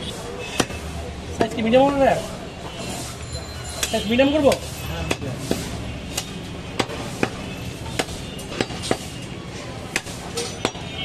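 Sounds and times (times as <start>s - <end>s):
cleaver chopping meat on wood: 0.5s - 1.6s, 4.5s - 9.2s, 9.8s - 10.9s.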